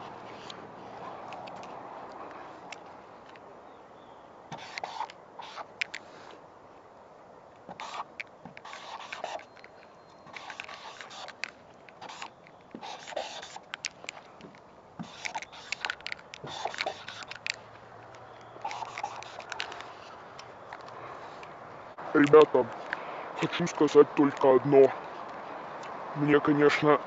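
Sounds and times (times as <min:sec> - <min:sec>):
marker scraping on painted surface: 0:04.5 - 0:06.4, 0:07.7 - 0:14.0, 0:15.0 - 0:17.6, 0:18.6 - 0:20.2.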